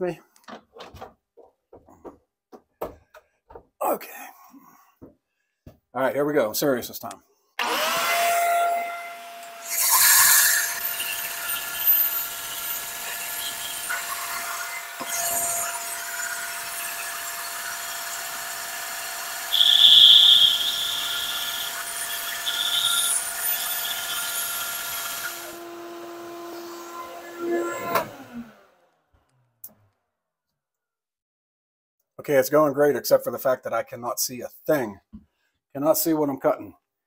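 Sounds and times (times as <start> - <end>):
bandsaw cutting a board: 7.6 - 28.7
shop vac running: 7.6 - 28.8.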